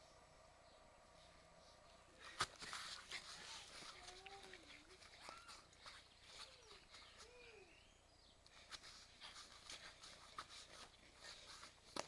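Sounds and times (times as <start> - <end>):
small clicks on grass: 2.2 - 7.7, 8.4 - 12.0
light scuffing steps on grass: 2.3 - 7.8, 8.5 - 12.0.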